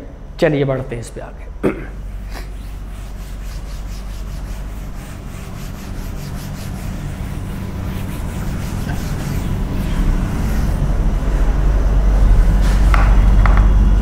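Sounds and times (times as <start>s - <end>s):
steady low hum: 0.0s - 14.0s
rubbing strokes on a board: 2.2s - 11.1s.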